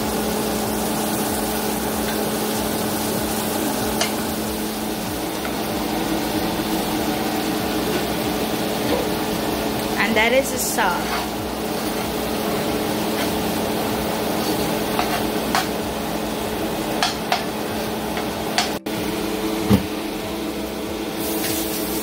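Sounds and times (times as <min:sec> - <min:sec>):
light sizzling: 0:00.0 - 0:18.8, 0:21.1 - 0:22.0
spoon stirring and scraping a pan: 0:11.0 - 0:13.6, 0:14.3 - 0:15.8.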